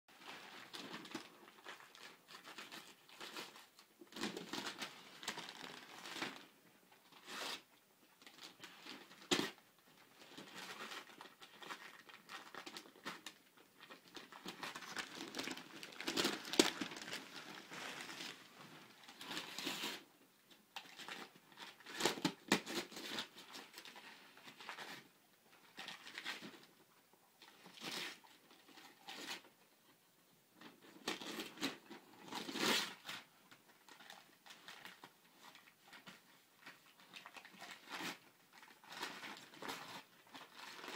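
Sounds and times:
wrapping paper crinkling and tearing: 0.2 - 6.5, 7.1 - 7.6, 10.2 - 20.1, 20.8 - 25.0, 30.8 - 40.9.

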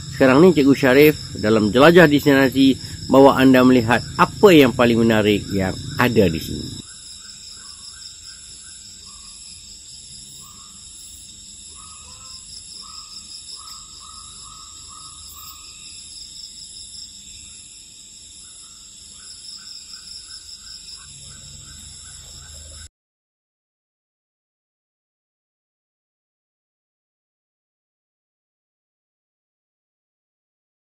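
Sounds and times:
high insect chorus: 0.0 - 22.9.

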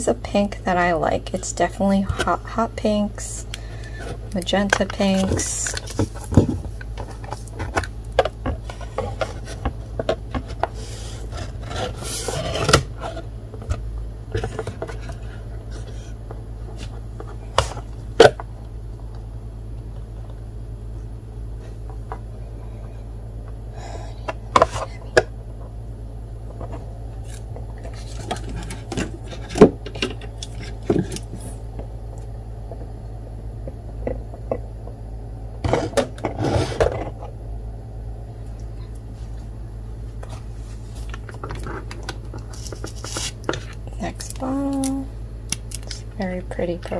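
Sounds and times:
steady low hum: 0.0 - 46.9.

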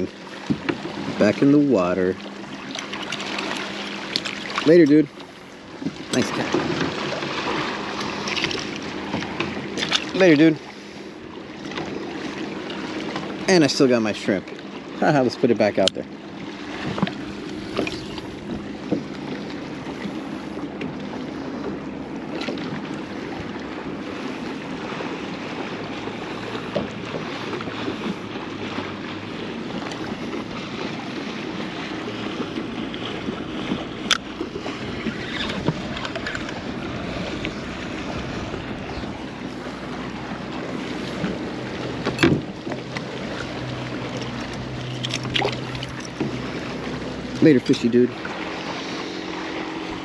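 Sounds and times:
small waves lapping: 0.0 - 50.0
wind on microphone: 33.2 - 39.4.

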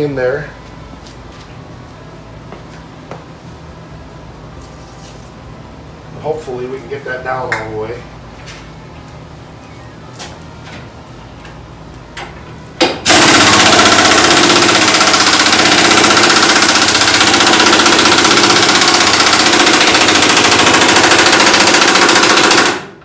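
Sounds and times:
pneumatic impact wrench hammering: 12.8 - 23.0.

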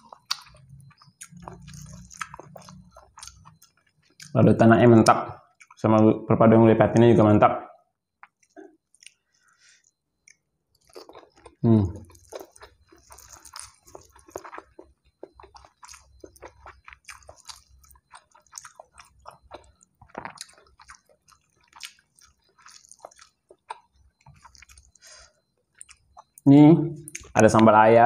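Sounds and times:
chewing mouth clicks: 0.0 - 4.4, 5.5 - 5.8, 8.2 - 9.2, 9.8 - 26.4.

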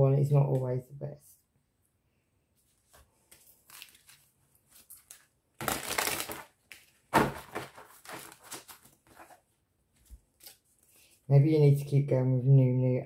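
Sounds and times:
cards being shuffled: 2.7 - 11.0.

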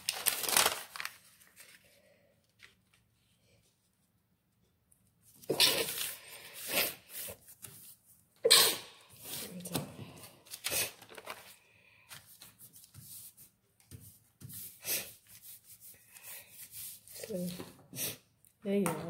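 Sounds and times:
paper rustling and crinkling: 0.0 - 3.8, 9.2 - 17.6.

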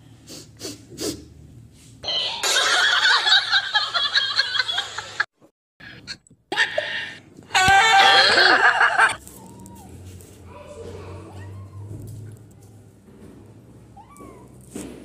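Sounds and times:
people laughing: 2.4 - 5.3, 7.6 - 9.2
faint clicks and handling noise: 11.9 - 13.6.

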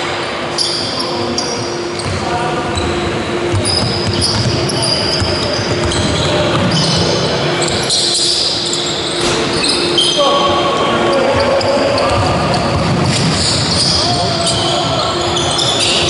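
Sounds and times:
sneakers squeaking on floor: 0.5 - 16.0
players calling out: 0.6 - 16.0
basketball bouncing: 3.5 - 6.8.

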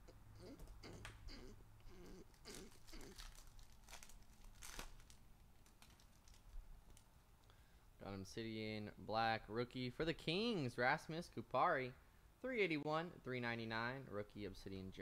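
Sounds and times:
foil wrapper tearing and crinkling: 2.4 - 7.0.

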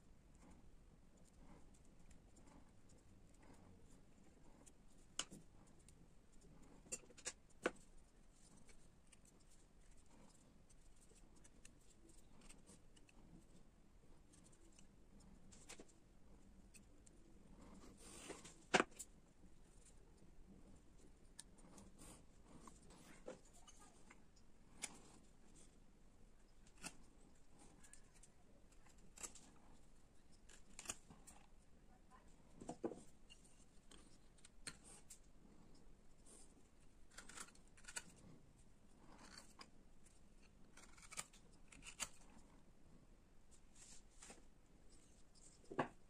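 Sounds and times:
gouge slicing and scraping wood: 37.1 - 38.3, 40.4 - 42.3.

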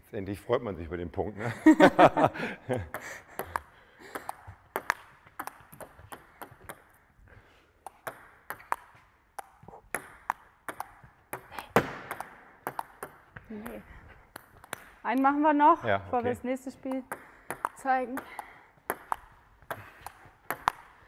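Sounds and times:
table tennis ball clicking: 3.4 - 7.0, 7.8 - 15.3, 16.8 - 21.0.

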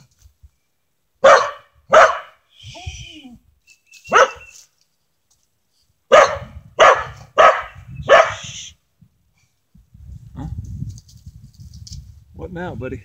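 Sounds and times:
dog barking: 1.2 - 2.4, 4.1 - 4.5, 6.1 - 8.4.

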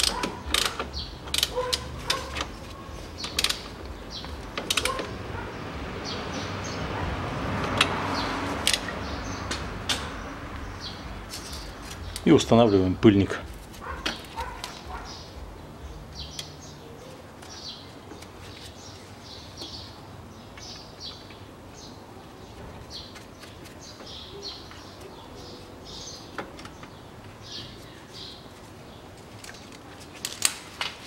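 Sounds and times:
sharp clicks: 0.0 - 2.2, 3.2 - 5.2.

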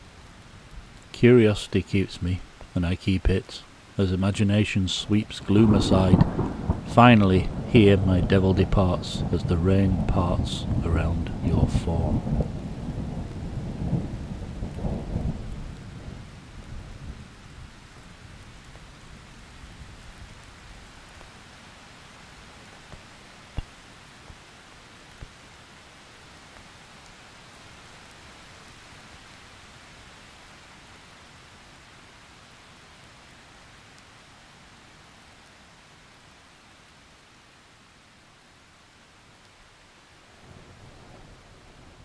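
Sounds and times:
steady rain: 0.0 - 42.0
low thunder rumble: 4.9 - 17.4
faint ticks: 25.0 - 25.5.

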